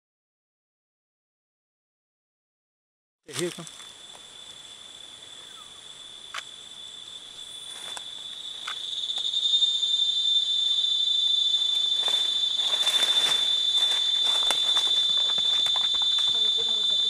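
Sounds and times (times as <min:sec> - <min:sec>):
high-pitched insect drone: 0:03.3 - 0:17.0
leaves and branches rustling: 0:05.9 - 0:09.1, 0:11.5 - 0:17.0.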